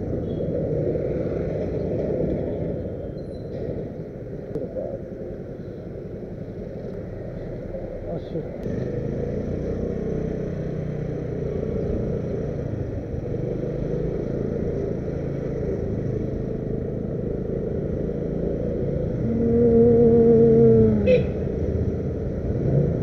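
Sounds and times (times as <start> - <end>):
road noise: 0.0 - 23.0
vehicle engine running: 4.6 - 23.0
loud steady tone: 19.2 - 21.6.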